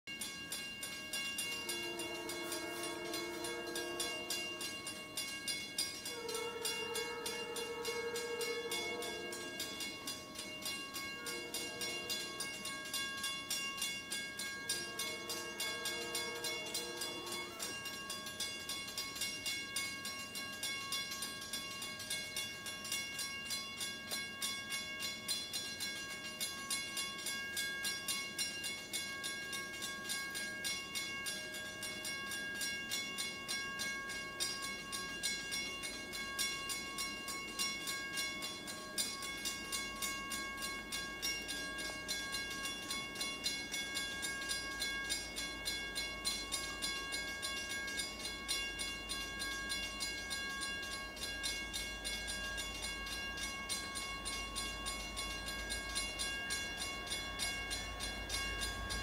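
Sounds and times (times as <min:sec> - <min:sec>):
crossing bell dinging: 0:00.1 - 0:59.0
locomotive air horn blasts: 0:01.6 - 0:05.0, 0:06.0 - 0:10.0, 0:10.9 - 0:12.5, 0:14.7 - 0:17.8.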